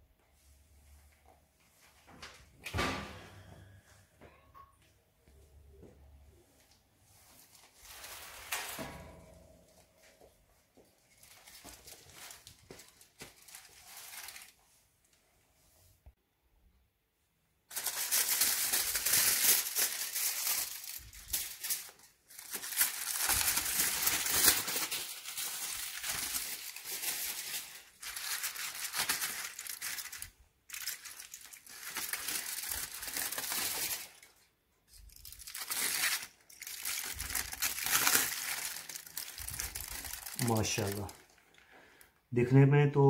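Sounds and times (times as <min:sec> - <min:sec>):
kitchen foil crinkling: 0:07.2 - 0:08.9, 0:11.0 - 0:14.8, 0:17.7 - 0:41.7.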